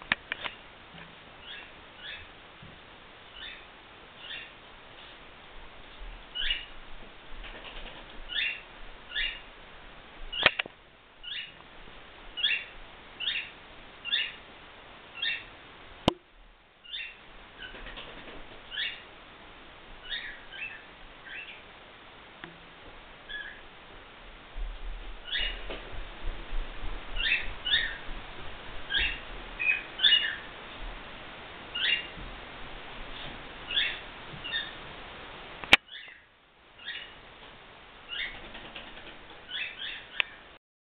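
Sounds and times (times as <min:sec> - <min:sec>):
cockatiel chirping: 0:01.4 - 0:02.3, 0:03.4 - 0:03.6, 0:04.2 - 0:04.5, 0:06.4 - 0:06.7, 0:08.3 - 0:09.4, 0:11.2 - 0:11.6, 0:12.4 - 0:14.4, 0:15.2 - 0:15.5, 0:16.8 - 0:17.8, 0:18.7 - 0:19.0, 0:20.0 - 0:21.6, 0:23.3 - 0:23.6, 0:25.2 - 0:25.6, 0:27.2 - 0:28.0, 0:28.9 - 0:30.5, 0:31.7 - 0:32.2, 0:33.7 - 0:34.8, 0:35.9 - 0:37.2, 0:38.1 - 0:38.4, 0:39.5 - 0:40.4
sharp clicks: 0:10.4 - 0:10.8.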